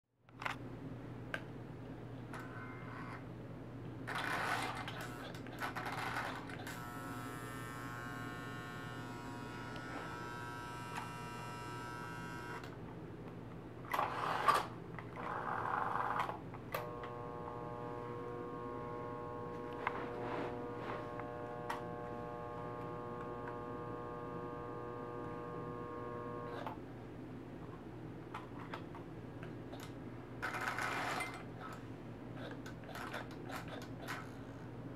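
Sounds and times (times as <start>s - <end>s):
mains hum: 0.2s - 34.9s
model train motor buzz: 4.1s - 12.7s, 14.0s - 26.8s.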